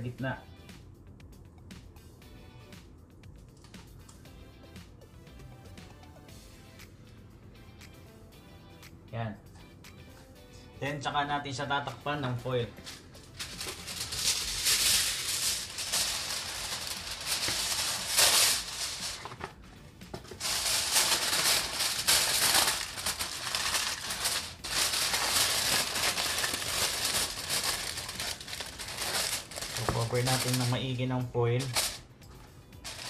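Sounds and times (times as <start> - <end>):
aluminium foil crinkling: 12.8 - 19.5, 20.4 - 31.0, 31.6 - 32.0.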